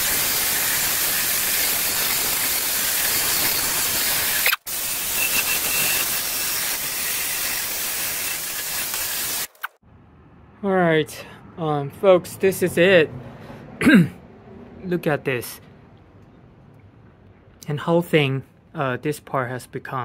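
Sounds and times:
wire brush scratching metal: 0.0s - 9.8s.

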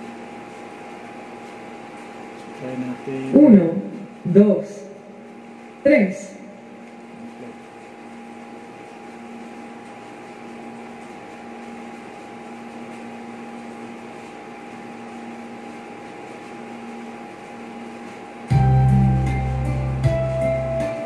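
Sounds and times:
karaoke player humming and whirring: 0.0s - 21.0s
two constant tones: 18.5s - 21.0s.

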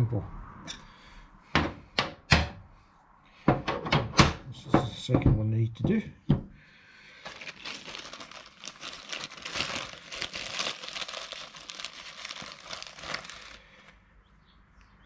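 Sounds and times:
plastic bag crinkling: 7.1s - 14.0s.

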